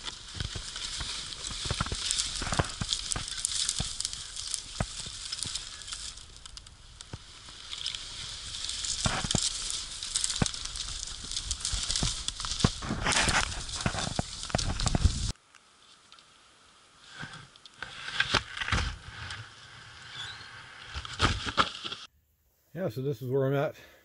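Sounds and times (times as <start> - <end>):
footsteps crunching through snow: 0.0 - 6.3, 7.1 - 15.4
twigs snapping: 0.0 - 16.3.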